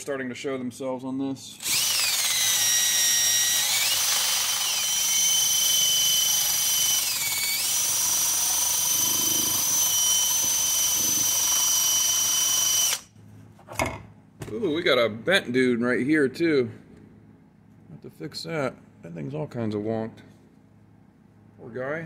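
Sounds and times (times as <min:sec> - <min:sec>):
drill motor whine: 0:01.6 - 0:13.1.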